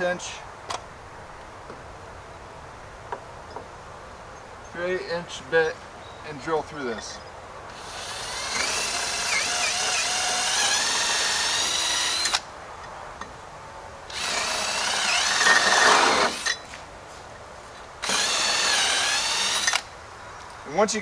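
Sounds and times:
power drill boring through wood: 7.7s - 12.4s, 14.1s - 16.6s, 18.0s - 19.9s.

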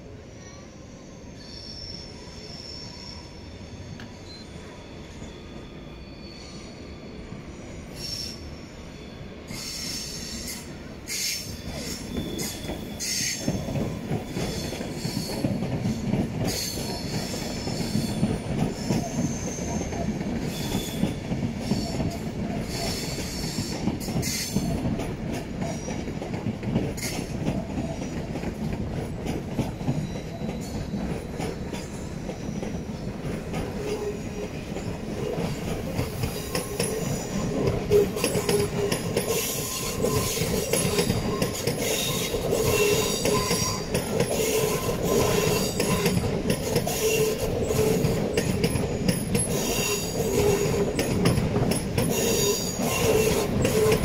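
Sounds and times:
train wheels rumbling: 9.3s - 54.0s
high-pitched wheel squealing: 39.2s - 46.2s.

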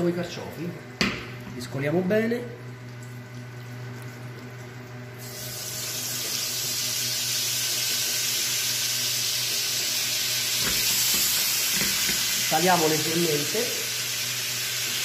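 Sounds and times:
food sizzling in frying pan: 5.0s - 15.0s.

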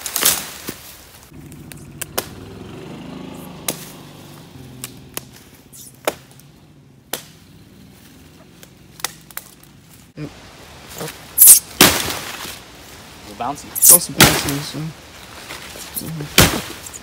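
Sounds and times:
droning engine hum: 1.3s - 10.2s
hatchet chopping wood: 3.6s - 3.9s, 6.0s - 6.4s, 7.1s - 7.4s, 13.8s - 14.6s, 16.4s - 16.8s.

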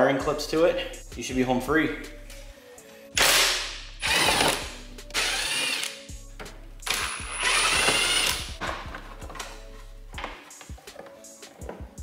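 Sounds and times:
cordless drill driving screws: 4.0s - 4.6s, 5.2s - 6.0s, 6.9s - 8.6s.

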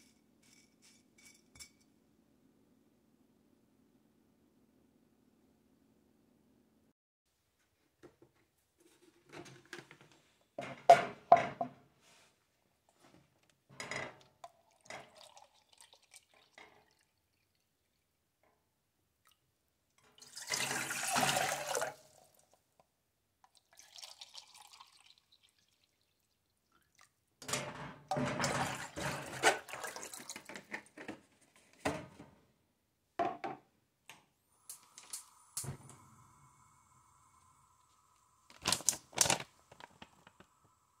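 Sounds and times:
water pouring and splashing: 14.6s - 17.6s, 20.2s - 22.4s, 23.6s - 27.1s, 28.1s - 30.9s.

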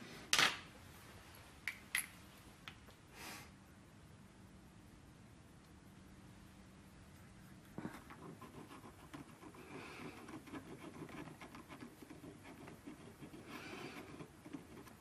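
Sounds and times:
hand file scratching metal: 8.1s - 15.0s.

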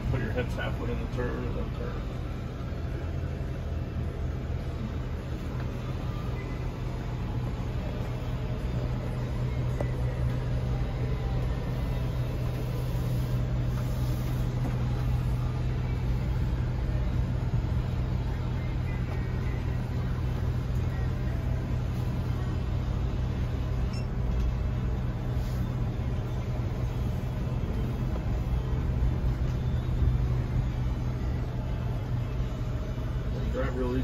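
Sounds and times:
low engine hum: 0.0s - 34.0s
road noise: 0.0s - 34.0s.

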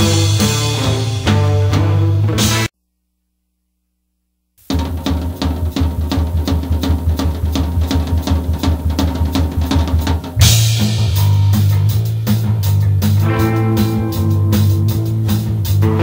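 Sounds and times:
fast drum beat: 0.0s - 1.5s, 4.6s - 16.0s
rock music: 0.0s - 2.7s, 4.7s - 16.0s.

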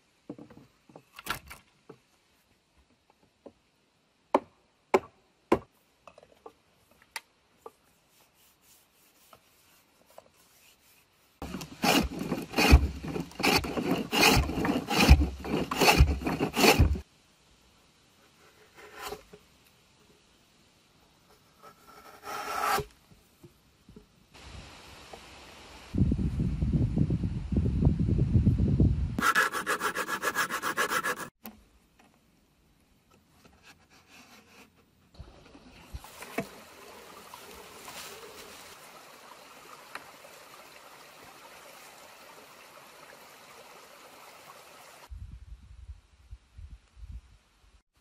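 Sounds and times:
hand tool rasping wood: 10.4s - 17.0s, 29.2s - 31.4s.

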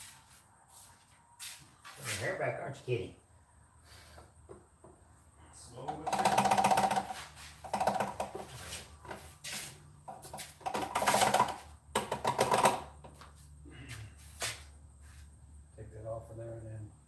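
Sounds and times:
hand ratchet clicking: 6.0s - 8.4s.

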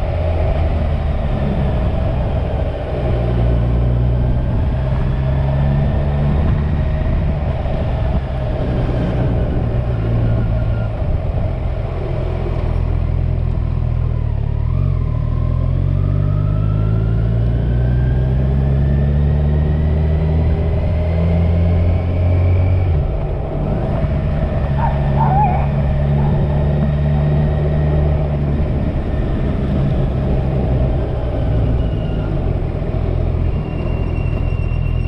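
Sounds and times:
motorcycle engine accelerating: 0.0s - 35.0s
wind rush: 4.2s - 11.9s, 22.7s - 35.0s.

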